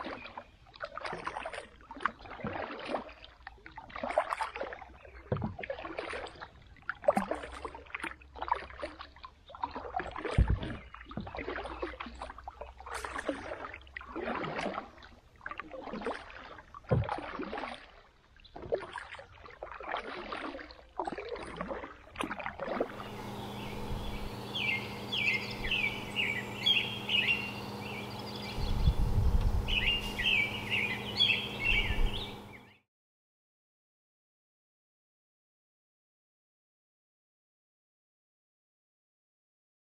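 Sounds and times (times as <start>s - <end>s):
water splashes and drips: 0.0s - 23.6s
paddle strokes in water: 0.0s - 32.7s
steady low hum: 22.8s - 32.8s
birds chirping: 22.9s - 32.8s.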